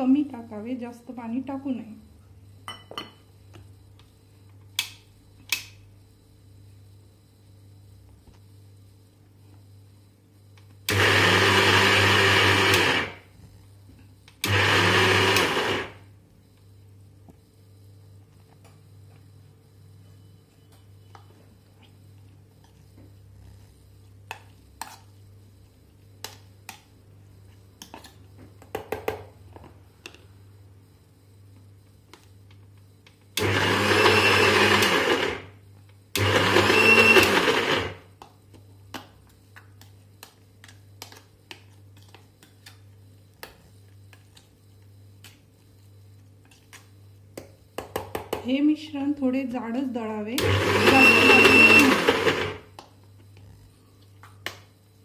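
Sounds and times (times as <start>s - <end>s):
mixer grinder grinding: 10.9s - 13.3s, 14.4s - 16.0s, 33.4s - 35.5s, 36.2s - 38.0s, 50.4s - 52.6s.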